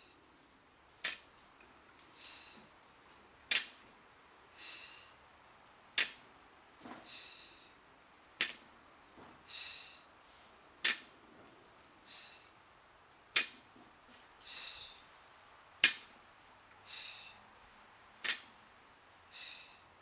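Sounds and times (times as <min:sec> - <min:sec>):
breathy exhale: 0:04.6 - 0:05.2, 0:07.0 - 0:07.8, 0:09.5 - 0:10.6, 0:12.0 - 0:12.5, 0:14.4 - 0:15.0, 0:16.8 - 0:17.4, 0:19.3 - 0:19.9
barbell tapping down: 0:10.8 - 0:11.1.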